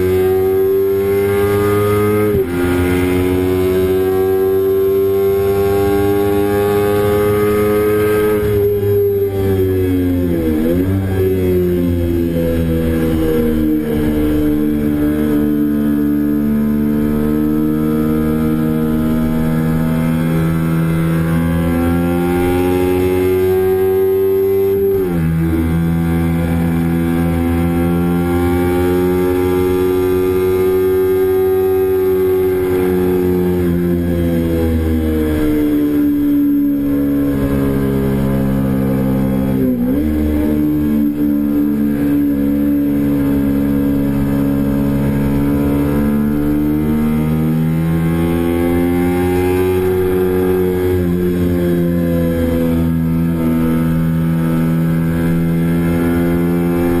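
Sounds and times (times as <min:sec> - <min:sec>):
motorcycle engine revving high: 0:00.0 - 0:57.0.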